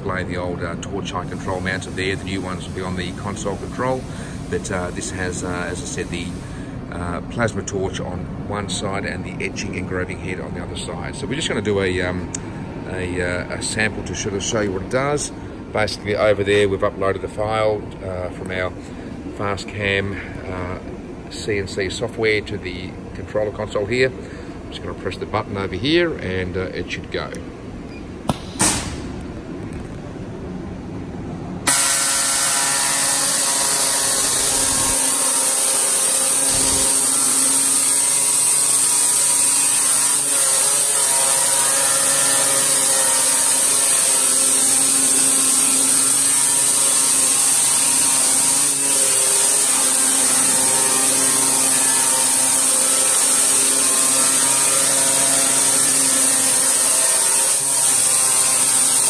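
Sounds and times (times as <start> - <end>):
quieter machine noise: 0.0 - 59.0
engraving head buzzing hiss: 1.2 - 6.6, 31.6 - 59.0.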